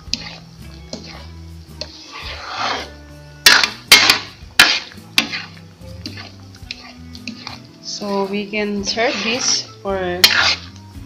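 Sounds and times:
background music: 0:00.0 - 0:11.0
ladle scraping a pan: 0:00.0 - 0:11.0
ladle clanking against pan: 0:03.4 - 0:07.6.

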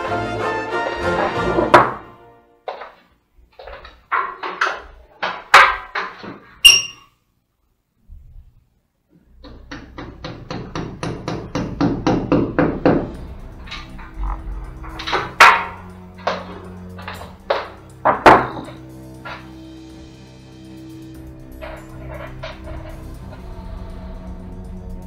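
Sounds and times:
ringing clink: 0:06.6 - 0:07.1
hammer tapping wall plug: 0:09.4 - 0:13.2
irregular knocks: 0:09.4 - 0:19.5.

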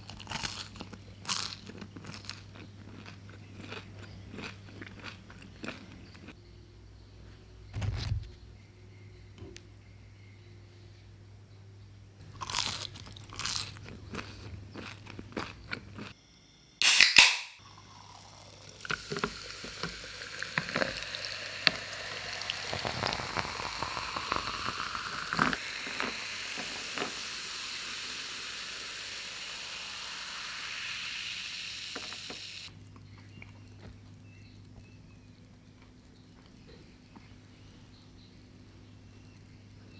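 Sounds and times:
fries crunching: 0:00.0 - 0:06.3, 0:12.3 - 0:16.2, 0:17.7 - 0:30.9
soda can opening hiss: 0:16.8 - 0:32.7
cola pouring and fizzing: 0:17.6 - 0:32.7.

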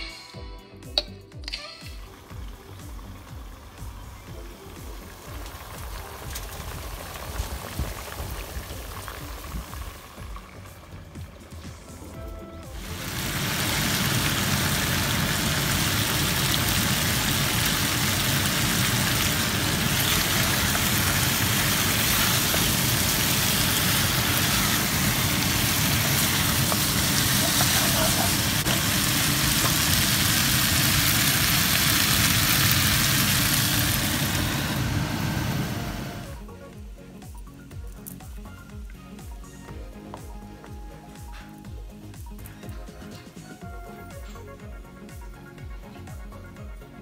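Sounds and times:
chicken frying roar and hiss: 0:02.2 - 0:12.0, 0:12.7 - 0:36.5.

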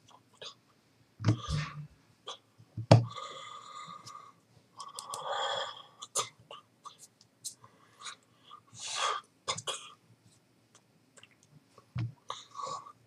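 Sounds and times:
dull thumps: 0:01.2 - 0:01.9, 0:02.8 - 0:03.1.

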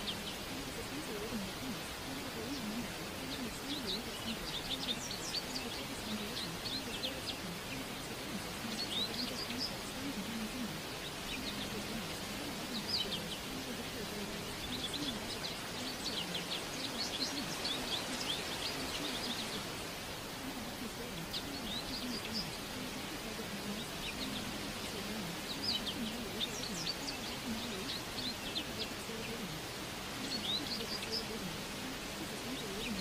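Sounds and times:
birds chirping: 0:00.0 - 0:33.0
faint low murmur: 0:00.0 - 0:33.0
steady outdoor hiss: 0:00.0 - 0:33.0.

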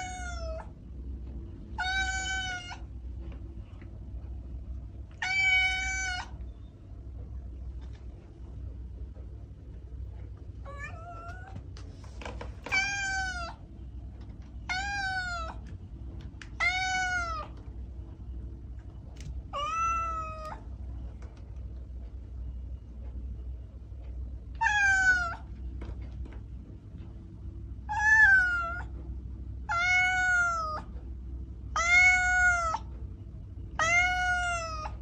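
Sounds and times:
cat meowing: 0:00.0 - 0:00.7, 0:01.8 - 0:02.9, 0:05.2 - 0:06.4, 0:10.6 - 0:11.6, 0:12.6 - 0:13.6, 0:14.6 - 0:15.7, 0:16.5 - 0:17.6, 0:19.5 - 0:20.7, 0:24.6 - 0:25.5, 0:27.9 - 0:28.9, 0:29.7 - 0:30.9, 0:31.7 - 0:32.9, 0:33.7 - 0:35.0.

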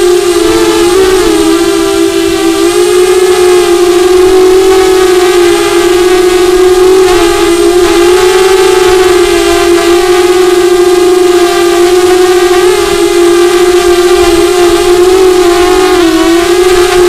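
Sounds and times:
drone motors humming: 0:00.0 - 0:17.0.

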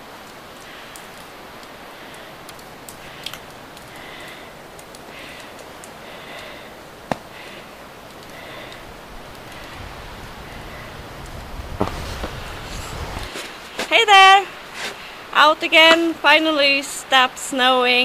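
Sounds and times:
outdoor hiss: 0:00.0 - 0:18.0.

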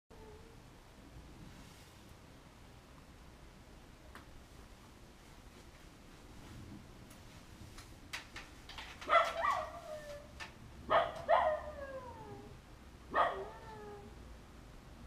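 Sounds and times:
dog howling: 0:11.0 - 0:12.6, 0:13.2 - 0:14.1.

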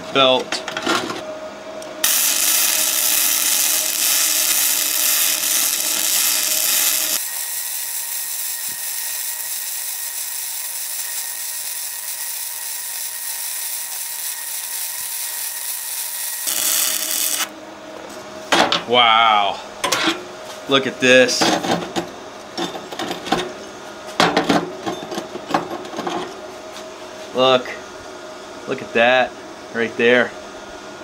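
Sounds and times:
welding arc sizzling: 0:02.0 - 0:17.5.

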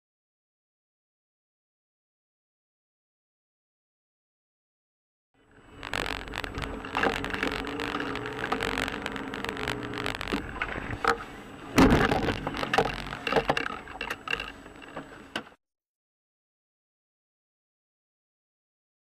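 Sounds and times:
car interior road hum: 0:05.5 - 0:15.4
clicks and rattles: 0:05.8 - 0:15.6.

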